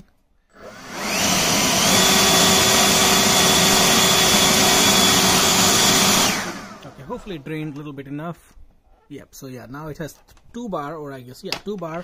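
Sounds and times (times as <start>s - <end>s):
leaf blower running: 0.6s - 7.2s.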